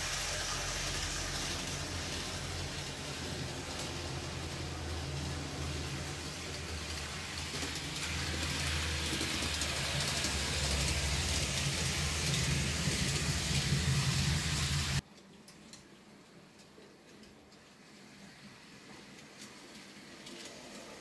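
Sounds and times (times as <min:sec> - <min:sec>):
model train motor hum: 0:00.0 - 0:15.0
wheels hissing on rails: 0:00.0 - 0:15.0, 0:17.6 - 0:21.0.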